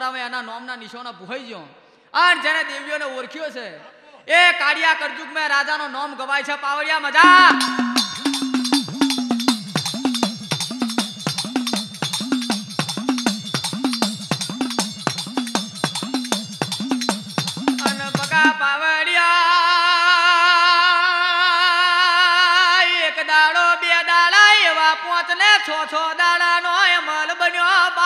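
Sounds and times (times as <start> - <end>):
singer holding a wavering note: 7.2 - 8.9
drum beat: 7.2 - 18.5
jingling percussion: 7.2 - 18.6.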